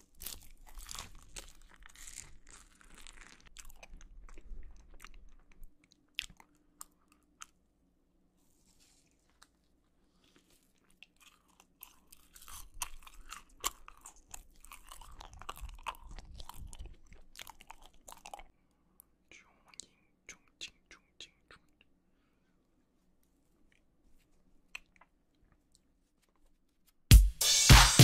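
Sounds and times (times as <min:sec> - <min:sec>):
close chewing with sharp clicks: 0:00.2 - 0:07.6, 0:10.2 - 0:20.5, 0:24.7 - 0:25.9.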